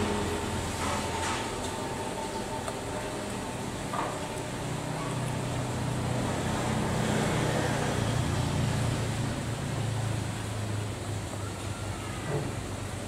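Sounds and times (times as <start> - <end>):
road vehicle engine passing: 4.3 - 11.2.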